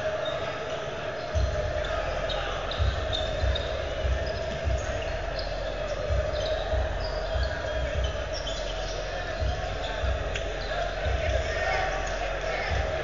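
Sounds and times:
sneaker squeaks: 0.0 - 13.0.

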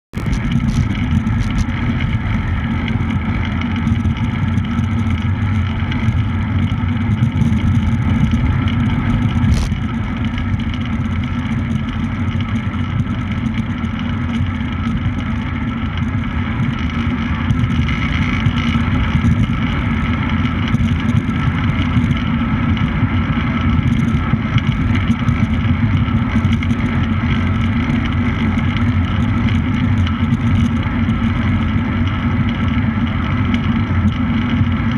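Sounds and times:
wind on microphone: 0.2 - 13.4.

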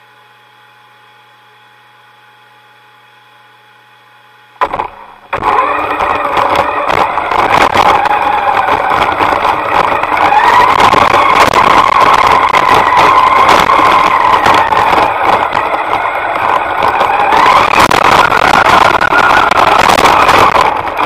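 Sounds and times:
faint steady hum: 0.0 - 5.4
model motors whining: 4.6 - 21.0.

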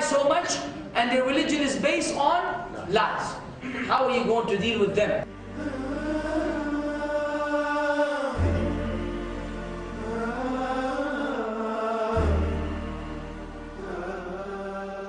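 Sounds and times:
sustained vocal chant: 5.2 - 15.0.

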